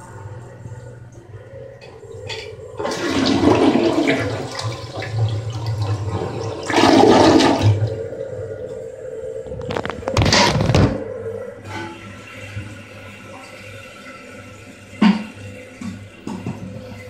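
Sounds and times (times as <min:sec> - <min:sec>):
toilet flushing: 0:02.0 - 0:08.7, 0:11.7 - 0:17.0.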